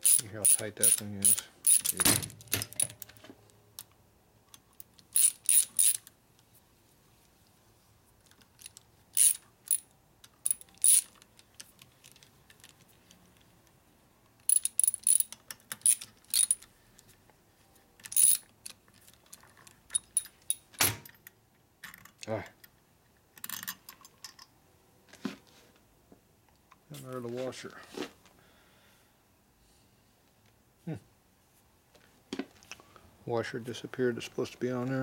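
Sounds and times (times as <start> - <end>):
hand ratchet clicking: 0.0 - 2.0, 5.1 - 6.1, 8.6 - 9.8, 10.4 - 11.2, 14.5 - 16.6, 18.0 - 18.5.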